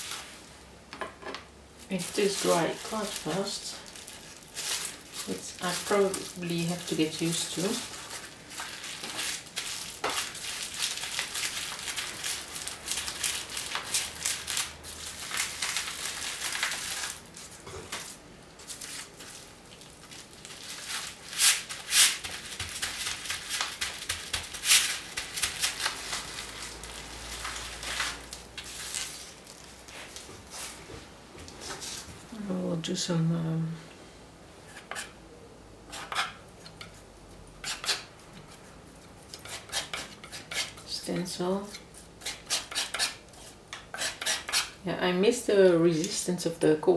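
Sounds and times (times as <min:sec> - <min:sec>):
bubble wrap crinkling: 0:00.0 - 0:00.6, 0:01.8 - 0:30.9.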